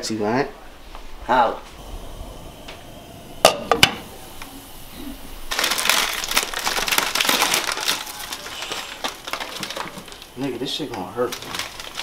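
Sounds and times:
plastic packets crinkling: 5.5 - 12.0.

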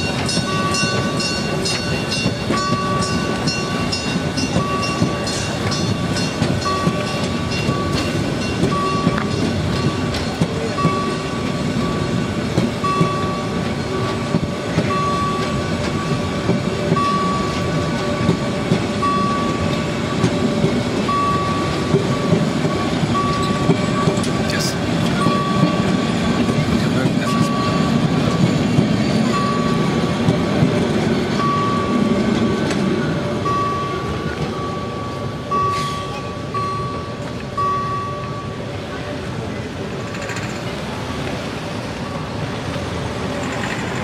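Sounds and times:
rail clacks: 0.0 - 44.0
wheel-and-rail rumble: 0.0 - 44.0.

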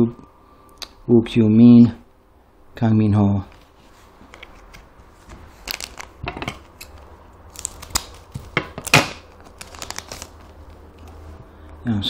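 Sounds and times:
foil wrapper crinkling: 4.3 - 11.2.

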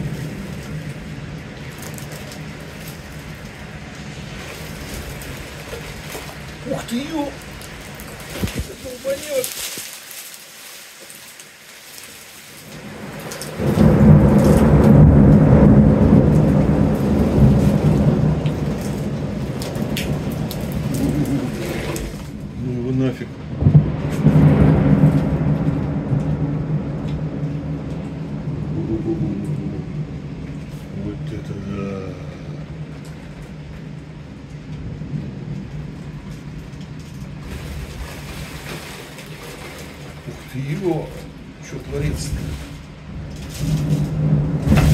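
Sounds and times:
thunder rolling: 0.0 - 9.7, 12.6 - 44.9
rain falling: 0.0 - 44.9
steady low hum: 13.9 - 37.9.

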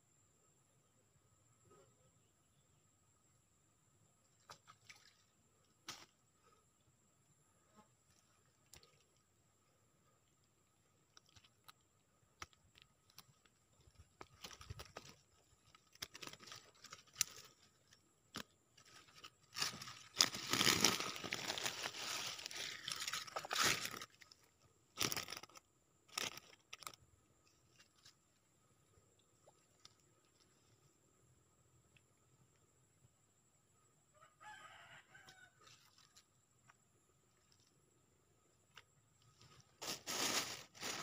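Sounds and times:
loud crinkling rustle: 18.8 - 24.2, 39.8 - 41.0.

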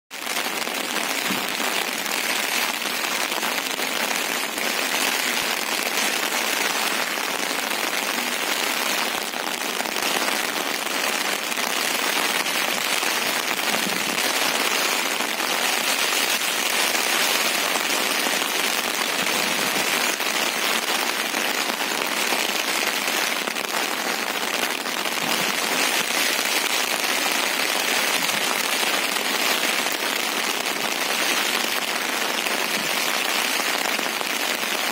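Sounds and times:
heavy rain hiss: 0.2 - 34.9.

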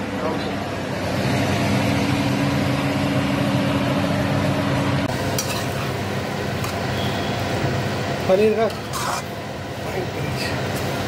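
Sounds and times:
vegetables sizzling in a pan: 5.1 - 11.0.

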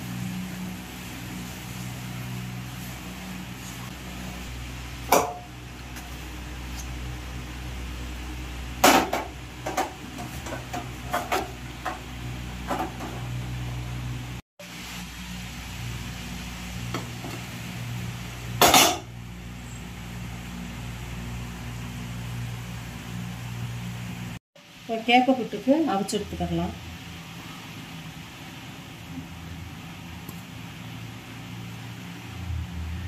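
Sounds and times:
metal pots clinking: 5.1 - 6.0, 18.6 - 19.1.

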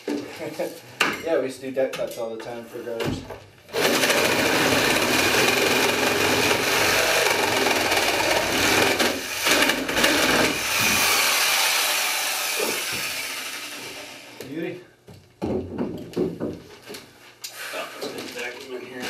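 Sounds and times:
reciprocating saw cutting logs: 3.8 - 14.4.

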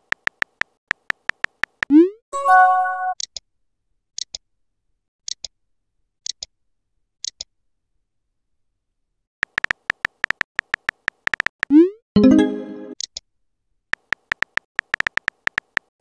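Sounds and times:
phone keyboard typing clicks: 0.0 - 1.9, 9.4 - 11.7, 14.0 - 15.9
short ticks in pairs: 0.0 - 1.9, 9.4 - 11.7, 14.0 - 15.9.

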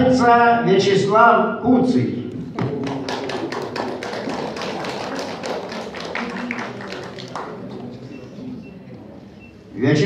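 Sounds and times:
audience clapping: 2.4 - 8.2.

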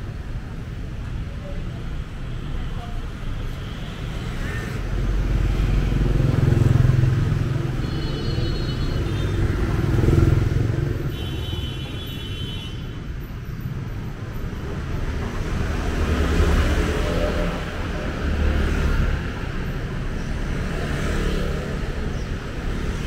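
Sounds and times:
motorbikes passing: 4.1 - 11.9, 14.2 - 23.0.

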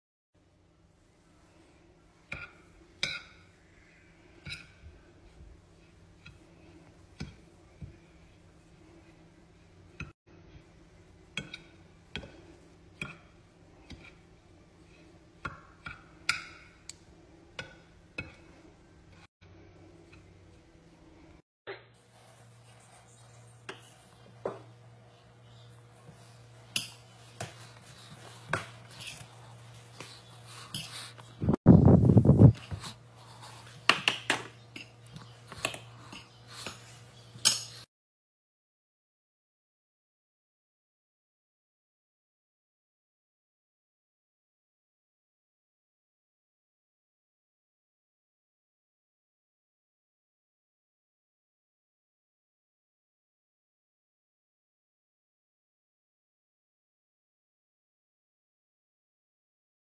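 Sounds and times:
steady low hum: 0.4 - 37.7.

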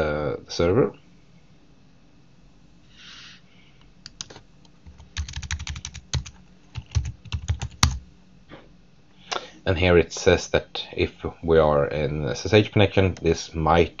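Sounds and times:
keyboard typing: 4.1 - 8.0.

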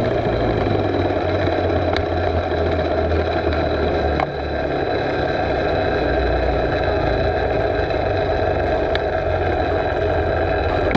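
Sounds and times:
small bike engine running: 0.0 - 10.9.

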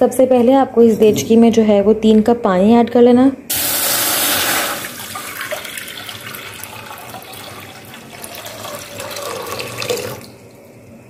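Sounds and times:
water pouring into metal pot: 3.5 - 10.5.

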